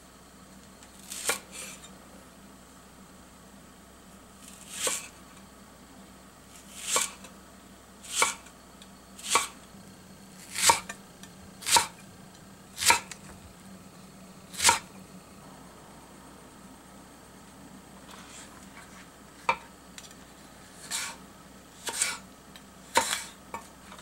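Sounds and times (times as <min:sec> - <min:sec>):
knife slicing onion on wooden board: 0:01.0 - 0:01.9, 0:04.4 - 0:05.2, 0:06.5 - 0:07.3, 0:08.0 - 0:08.5, 0:09.2 - 0:09.6, 0:10.4 - 0:11.0, 0:11.6 - 0:12.0, 0:12.8 - 0:13.3, 0:14.5 - 0:14.9, 0:20.7 - 0:21.2, 0:21.8 - 0:24.0.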